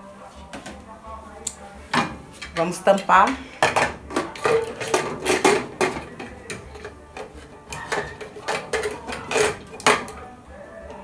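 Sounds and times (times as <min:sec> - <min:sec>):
metal lid clanks and scrapes: 0:02.0 - 0:10.2.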